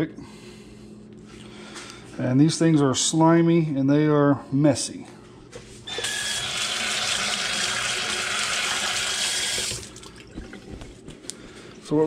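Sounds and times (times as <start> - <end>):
faucet running: 5.9 - 10.4.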